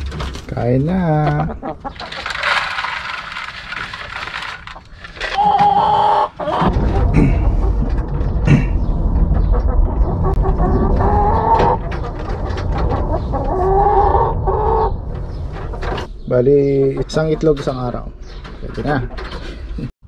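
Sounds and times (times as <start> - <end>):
chickens clucking and calling: 0.9 - 19.9
low rumble: 6.5 - 17.0.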